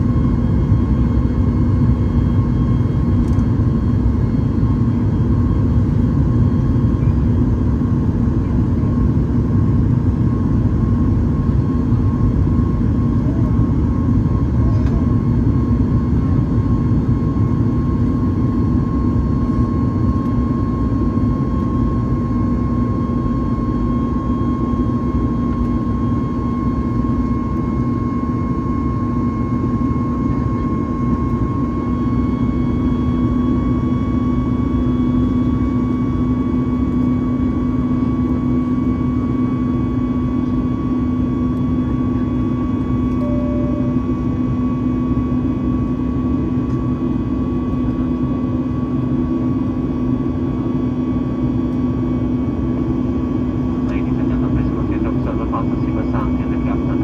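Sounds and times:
airplane cabin rumble: 40.4s - 46.9s, 52.4s - 57.0s
low hum: 41.5s - 46.7s
high engine tone: 43.0s - 45.6s.

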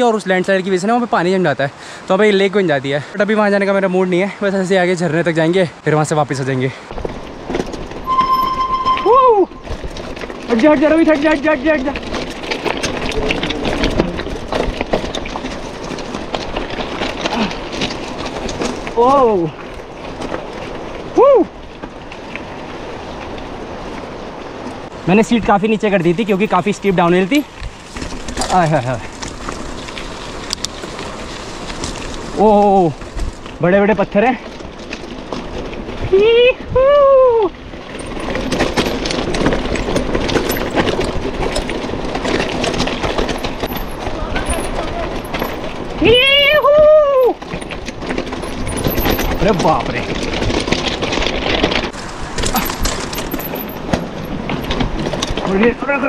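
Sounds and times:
tyres crunching over stones: 6.4s - 8.1s, 9.5s - 24.2s, 24.9s - 36.2s, 37.6s - 46.6s, 47.3s - 56.0s
bike clattering: 6.9s - 36.1s, 37.6s - 56.0s
rider shouting ooh: 9.0s - 9.6s, 21.2s - 21.5s, 36.2s - 37.6s, 46.0s - 47.4s.

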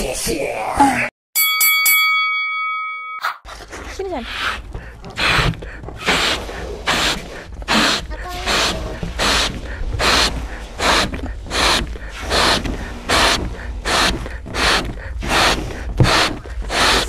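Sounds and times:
people blowing up balloons: 4.3s - 17.0s.

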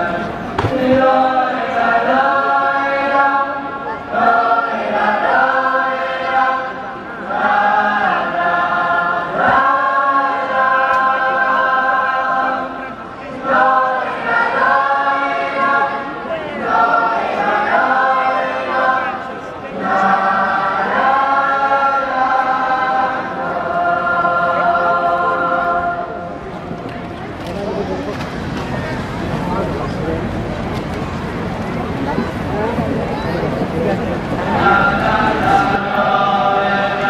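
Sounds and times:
men singing in unison: 34.4s - 37.0s.

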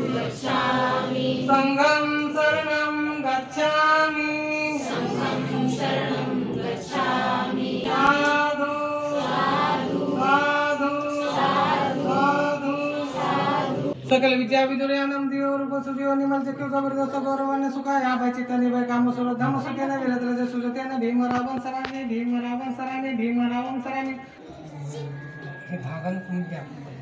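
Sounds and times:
group chanting in unison: 0.0s - 1.8s, 4.7s - 14.0s.

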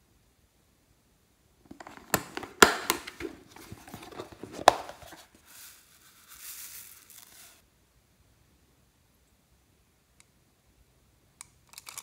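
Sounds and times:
plastic clicks and knocks: 1.7s - 5.2s
foam beads pouring: 5.0s - 7.6s.

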